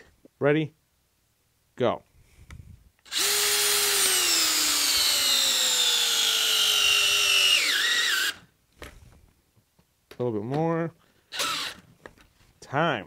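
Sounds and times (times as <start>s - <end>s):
drill motor whine: 3.1s - 8.4s, 11.3s - 11.8s.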